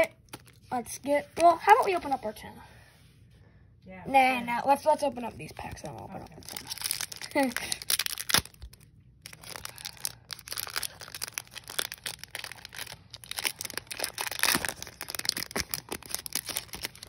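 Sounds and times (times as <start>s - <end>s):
foil wrapper crinkling: 0.0s - 0.7s, 5.6s - 17.0s.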